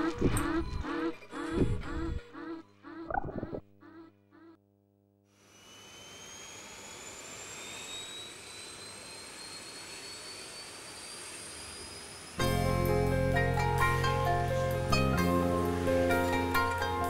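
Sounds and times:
jet engine running up: 0:05.5 - 0:17.0.

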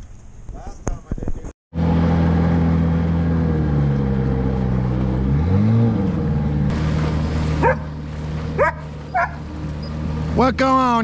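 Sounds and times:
outboard motor running: 0:01.8 - 0:11.0
dog yipping: 0:07.6 - 0:07.9, 0:08.6 - 0:09.9.

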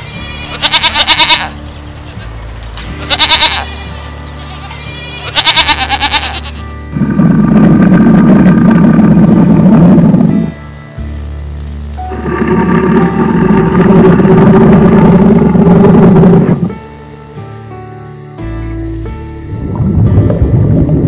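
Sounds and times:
animal quavering cries: 0:00.0 - 0:01.6, 0:03.0 - 0:03.9, 0:04.5 - 0:10.5, 0:12.1 - 0:16.7
background music: 0:00.0 - 0:21.0
low rough sound: 0:12.0 - 0:16.8.

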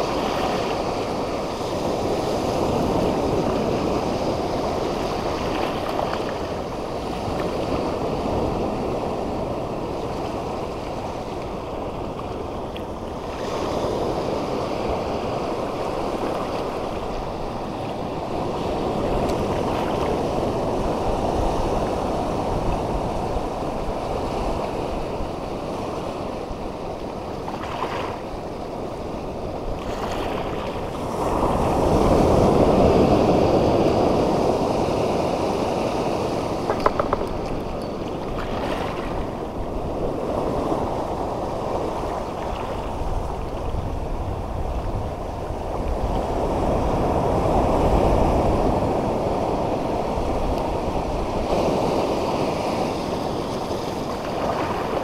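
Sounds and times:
wind buffeting microphone: 0:28.0 - 0:55.0
surf breaking over rocks: 0:29.8 - 0:55.0.

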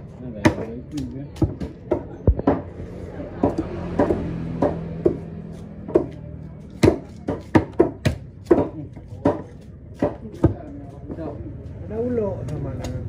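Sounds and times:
knife chopping on wooden block: 0:00.4 - 0:02.8, 0:03.4 - 0:10.7.

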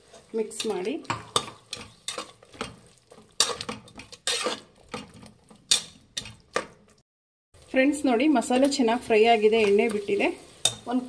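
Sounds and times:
spatula scraping pressure cooker: 0:03.4 - 0:06.3.

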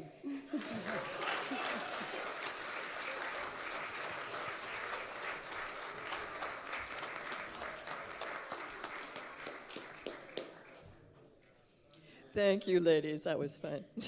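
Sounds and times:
audience applauding: 0:00.5 - 0:11.0.

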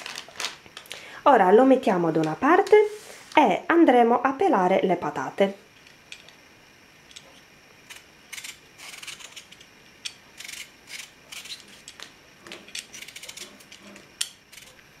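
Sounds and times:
vegetable peeler scraping potato: 0:07.9 - 0:09.7, 0:10.4 - 0:14.8.

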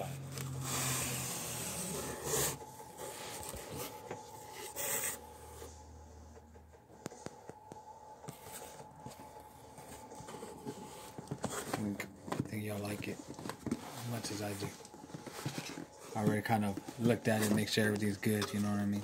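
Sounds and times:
cardboard rubbing and scraping: 0:00.0 - 0:05.6.

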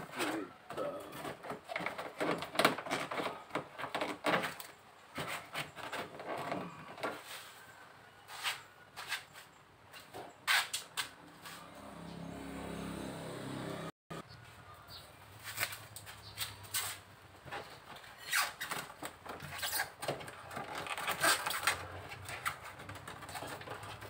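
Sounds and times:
foil sheet crinkling and rustling: 0:18.2 - 0:24.0.

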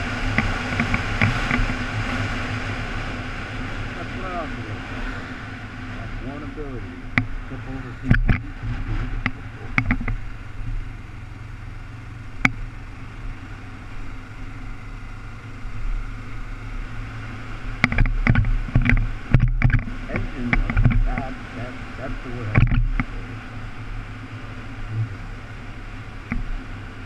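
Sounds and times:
motorcycle engine drone: 0:00.0 - 0:27.0
rushing wind: 0:00.0 - 0:27.0
sharp knocks and thumps: 0:08.0 - 0:08.5, 0:09.2 - 0:10.8, 0:17.8 - 0:21.4, 0:22.4 - 0:23.2.

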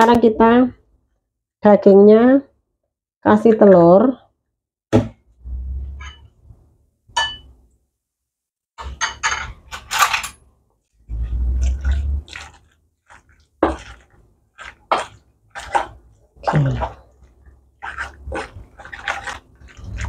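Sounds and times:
spoon clinking against metal bowl: 0:07.2 - 0:07.5
wet squishing: 0:11.0 - 0:20.0.

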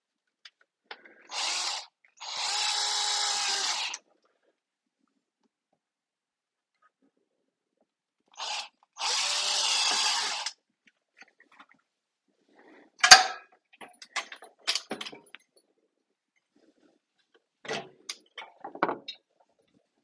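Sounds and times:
cordless drill drilling: 0:01.3 - 0:04.0, 0:08.4 - 0:10.6.

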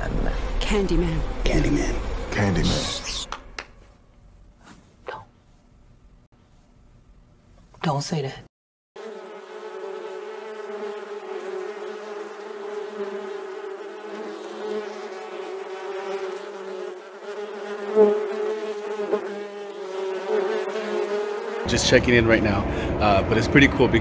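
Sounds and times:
buzzing hum: 0:00.0 - 0:04.2.

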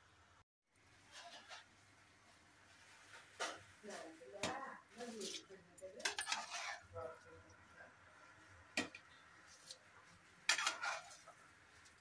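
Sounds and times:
metal spoon scraping pot: 0:06.0 - 0:07.0, 0:10.5 - 0:11.4.

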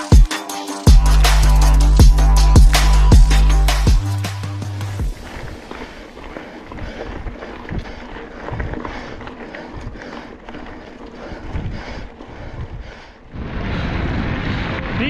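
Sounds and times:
wind buffeting microphone: 0:05.0 - 0:15.0.

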